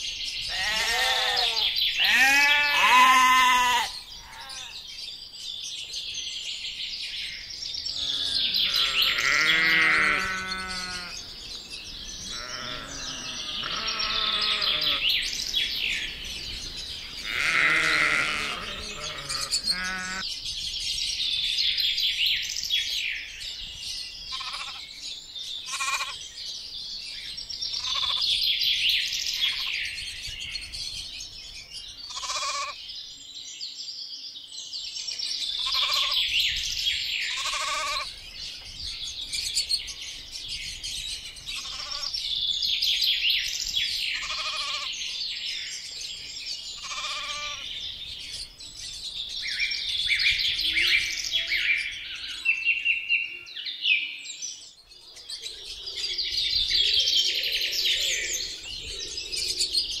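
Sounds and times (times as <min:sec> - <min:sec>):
songbirds chirping: 0:00.0 - 1:00.0
sheep bleating: 0:00.5 - 0:04.8, 0:08.0 - 0:11.2, 0:12.3 - 0:15.1, 0:17.2 - 0:20.2, 0:24.3 - 0:24.8, 0:25.7 - 0:26.2, 0:27.8 - 0:28.2, 0:32.1 - 0:32.8, 0:35.6 - 0:36.2, 0:37.3 - 0:38.1, 0:41.6 - 0:42.1, 0:44.2 - 0:45.0, 0:46.8 - 0:47.7.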